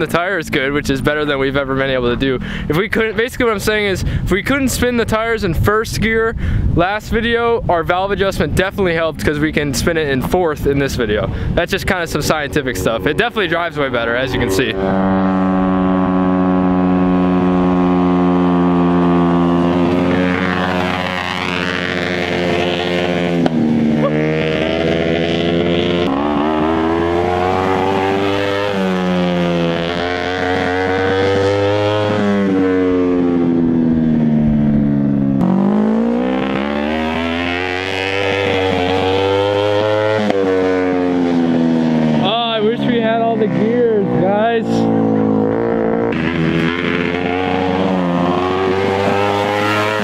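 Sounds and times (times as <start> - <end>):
engine revving: 10.0 - 50.0.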